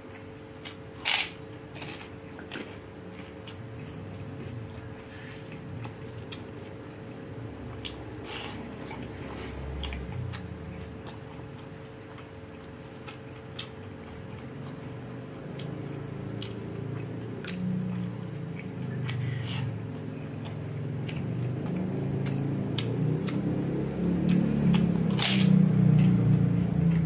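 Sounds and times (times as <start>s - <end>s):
person chewing with lip smacks: 16.4s - 23.6s.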